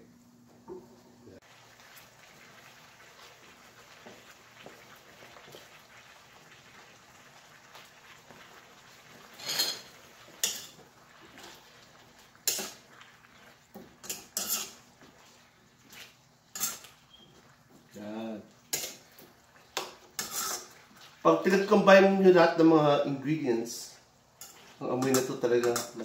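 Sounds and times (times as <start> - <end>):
chicken simmering in a wok: 1.2 - 26.0
utensil knocking and scraping a pan: 9.1 - 17.9, 18.7 - 21.2, 24.4 - 26.0.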